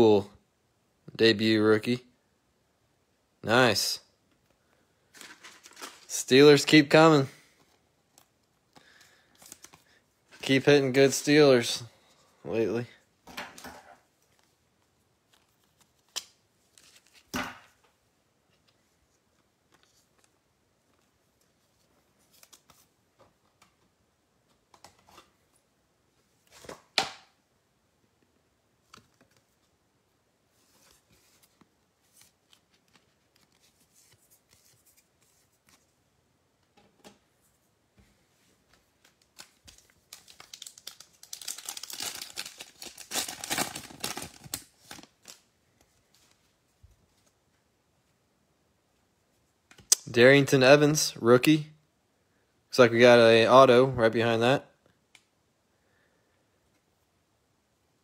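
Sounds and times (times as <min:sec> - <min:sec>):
cards rustling and clicking: 0:05.1 - 0:06.2, 0:07.5 - 0:11.4, 0:15.2 - 0:17.8, 0:18.5 - 0:23.9, 0:28.8 - 0:29.8, 0:30.6 - 0:36.0, 0:38.7 - 0:46.5
foil pack crinkling and tearing: 0:39.3 - 0:45.4.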